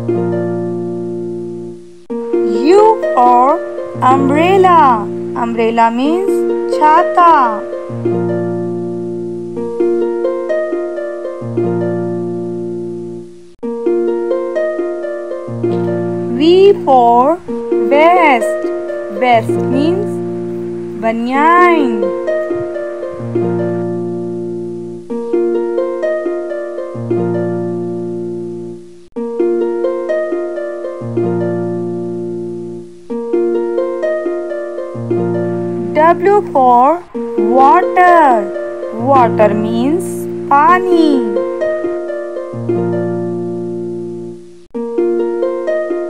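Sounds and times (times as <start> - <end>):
plucked-string melody: 0.0 - 46.0
low held bass notes: 2.6 - 9.4, 15.6 - 25.1, 35.0 - 44.4.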